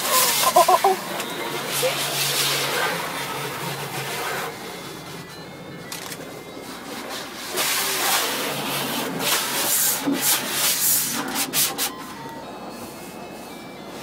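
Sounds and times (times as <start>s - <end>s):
water spray hissing: 0.0s - 1.0s
car wash brushes scrubbing: 0.0s - 5.2s, 6.6s - 11.9s.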